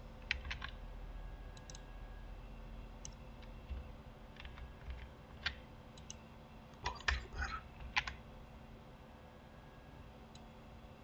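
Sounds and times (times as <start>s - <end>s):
keyboard clicks: 0.3s - 0.8s
computer mouse clicks: 1.6s - 1.9s, 4.4s - 8.2s.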